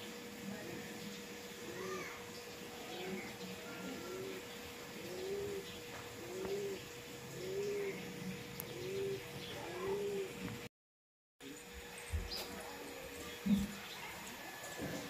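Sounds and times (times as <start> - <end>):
dove cooing: 1.5 - 10.5.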